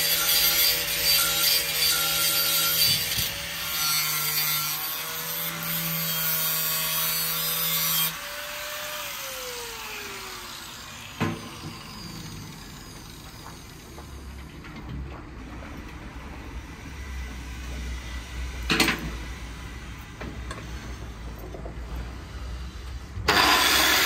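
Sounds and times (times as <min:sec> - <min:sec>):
power tool motor running: 0:23.3 - 0:24.0.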